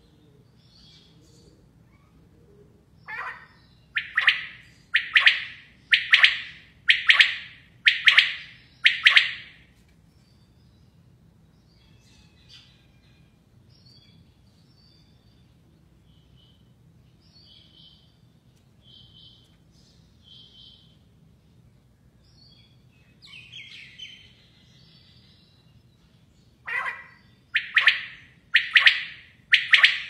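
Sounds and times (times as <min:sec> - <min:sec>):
quail calling: 0:03.1 - 0:09.6, 0:26.7 - 0:30.0.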